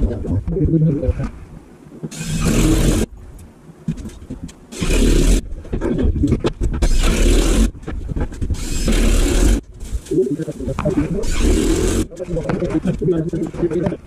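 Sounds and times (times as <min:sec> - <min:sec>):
cordless drill bursts: 0:02.1 - 0:03.1, 0:04.7 - 0:05.4, 0:06.9 - 0:07.7, 0:08.6 - 0:09.6, 0:11.2 - 0:12.1.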